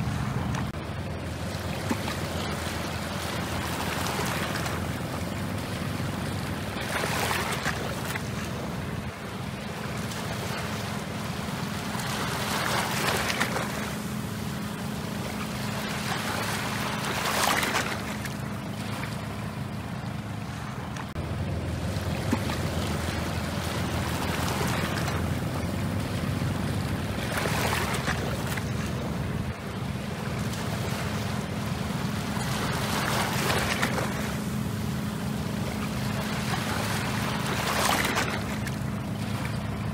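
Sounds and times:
boat engine drone: 0.0s - 39.9s
rushing wind and water: 0.0s - 39.9s.

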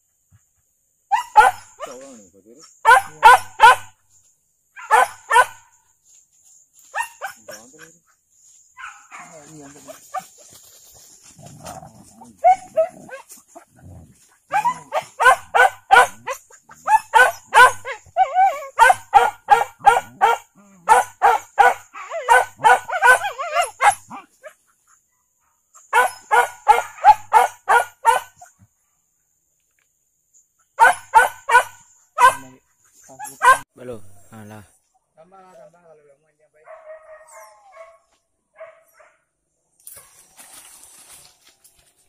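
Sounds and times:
dogs barking in high yelps: 1.1s - 2.0s, 2.8s - 4.0s, 4.8s - 5.8s, 6.9s - 7.8s, 8.8s - 10.5s, 12.2s - 28.5s, 30.6s - 33.7s, 36.7s - 39.2s.

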